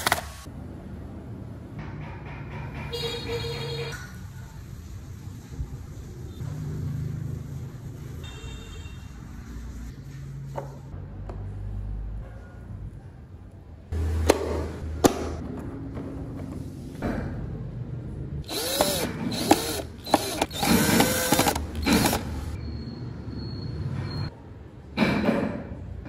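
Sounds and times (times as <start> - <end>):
sharp wooden clicks: 18.5 - 22.5.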